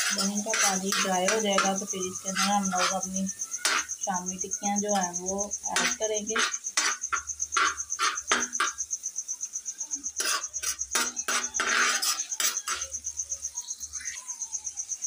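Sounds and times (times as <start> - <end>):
metal spatula scraping griddle: 0.0 - 4.0, 4.8 - 8.8, 10.2 - 13.0.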